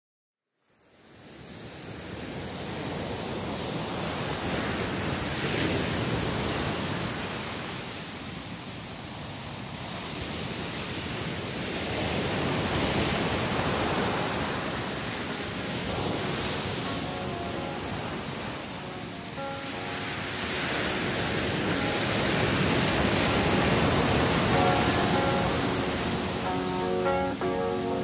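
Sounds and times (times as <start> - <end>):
small waves washing on beach: 9.8 - 28.0.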